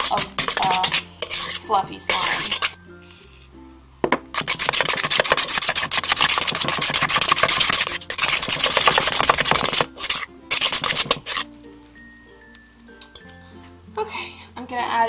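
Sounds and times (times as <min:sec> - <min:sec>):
metal spoon scraping a bowl: 0:00.0 - 0:02.8, 0:04.4 - 0:11.5.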